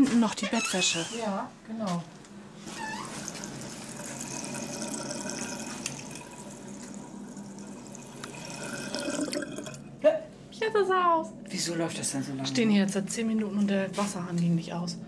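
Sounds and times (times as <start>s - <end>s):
tap running into washbasin: 3.0s - 9.9s.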